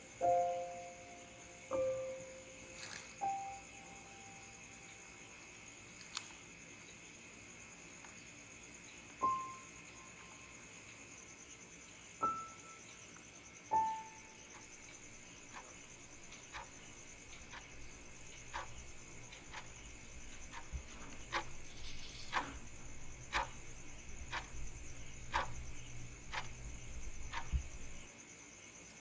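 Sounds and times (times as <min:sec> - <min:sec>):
crickets chirping: 0:00.0 - 0:29.0
analog clock ticking: 0:14.5 - 0:28.1
low hum: 0:14.5 - 0:28.1.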